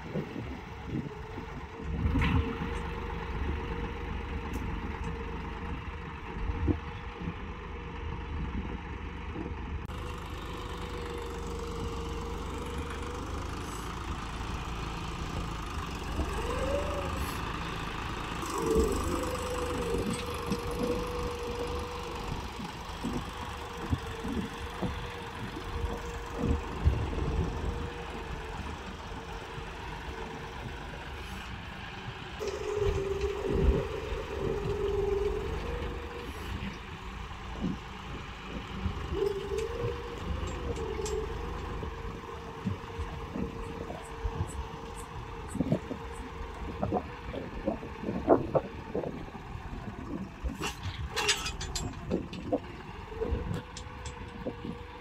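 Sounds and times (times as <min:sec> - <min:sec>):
tractor diesel engine under load: 0:00.0 - 0:55.0.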